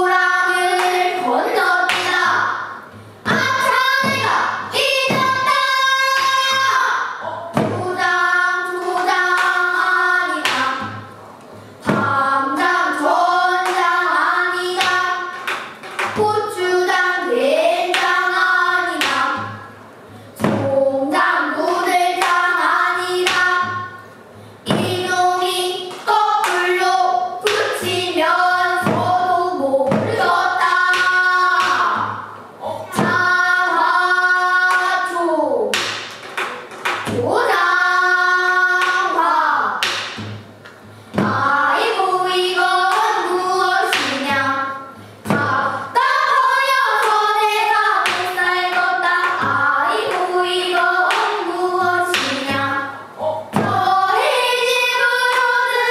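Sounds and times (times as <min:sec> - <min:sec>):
children singing together: 0:00.0 - 0:11.2, 0:11.8 - 0:40.4, 0:41.2 - 0:55.9
sharp knocks: 0:07.5 - 0:08.0, 0:29.8 - 0:32.2, 0:35.7 - 0:37.3, 0:39.8 - 0:41.5.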